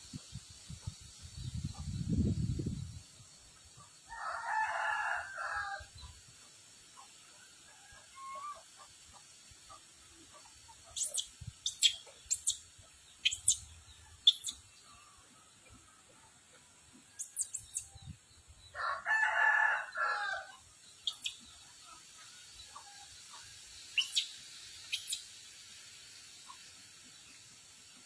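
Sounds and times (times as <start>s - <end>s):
rooster crowing: 4.1s - 5.9s, 18.8s - 20.5s
bird chirping: 10.8s - 15.0s, 17.2s - 18.8s, 20.8s - 21.7s, 23.8s - 25.3s.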